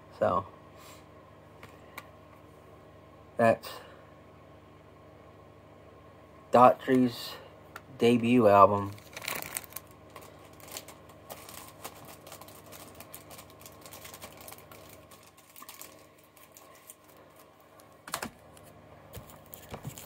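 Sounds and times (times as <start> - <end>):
plastic cd cases clicking: 8.7 - 17.0, 18.0 - 18.4.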